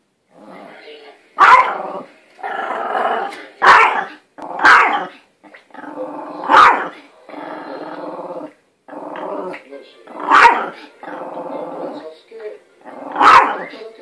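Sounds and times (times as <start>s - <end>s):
dog growling: 0.3s - 12.1s, 12.8s - 13.8s
small dog barking: 1.4s - 2.0s, 3.6s - 5.1s, 6.4s - 7.0s, 10.2s - 10.8s, 13.1s - 13.7s.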